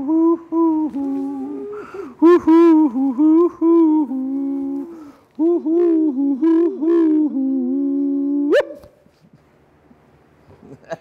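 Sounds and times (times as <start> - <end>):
men hooting in harmony: 0.0 - 8.9.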